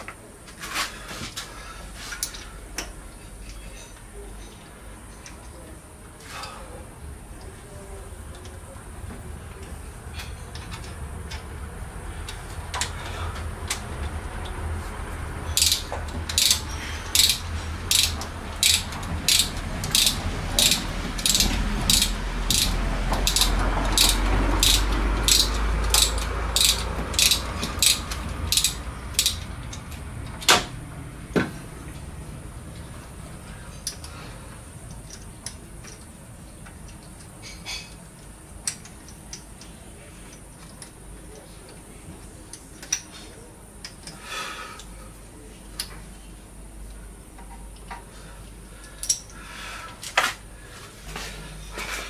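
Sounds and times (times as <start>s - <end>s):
ratchet wrench clicking: 15.4s - 30.5s.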